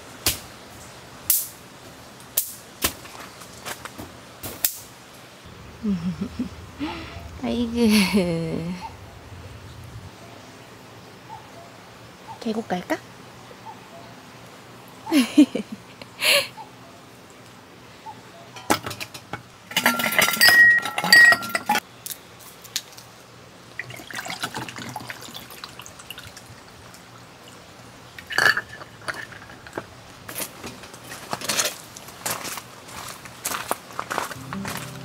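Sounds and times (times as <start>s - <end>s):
objects clinking and rattling: 18.6s - 21.8s.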